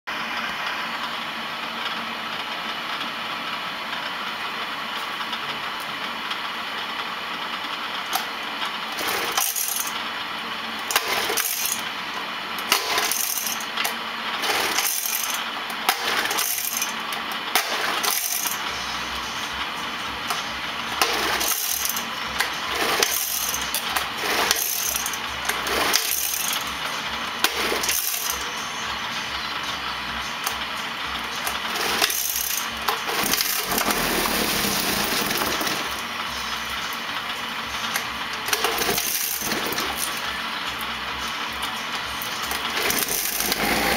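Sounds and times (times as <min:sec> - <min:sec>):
sharp metallic clicks and rattles: 0:07.6 - 0:10.1, 0:10.8 - 0:11.9, 0:12.6 - 0:28.6, 0:29.6 - 0:43.8
outboard motor running: 0:31.3 - 0:37.0, 0:42.5 - 0:43.9.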